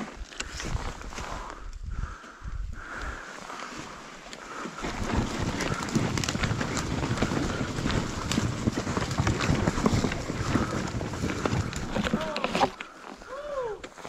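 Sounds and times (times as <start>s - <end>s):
dirt bike clattering over ground: 4.8s - 12.8s.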